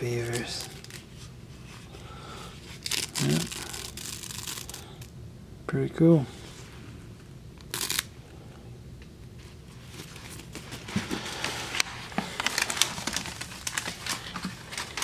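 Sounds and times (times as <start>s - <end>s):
plastic and paper wrappers crinkling: 0.0s - 2.0s, 2.6s - 5.1s, 9.7s - 15.0s.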